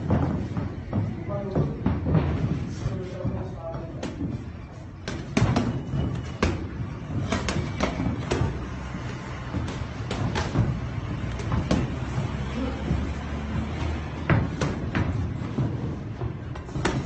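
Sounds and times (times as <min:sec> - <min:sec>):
boxing gloves smacking: 0:04.0 - 0:17.0.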